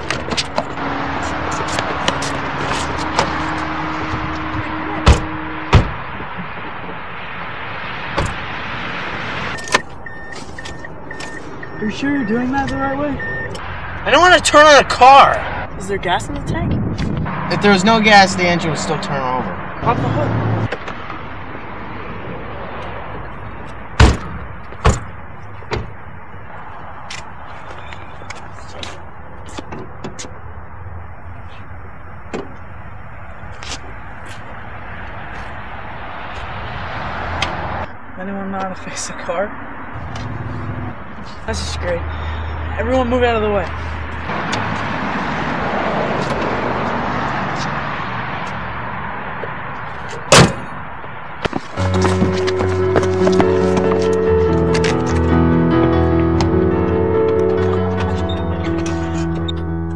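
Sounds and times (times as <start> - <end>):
car doors thudding shut: 1.6 - 7.0, 8.1 - 8.5, 24.0 - 26.0, 50.2 - 50.7
car hood slamming shut: 4.0 - 6.1, 24.0 - 25.1, 50.3 - 50.7.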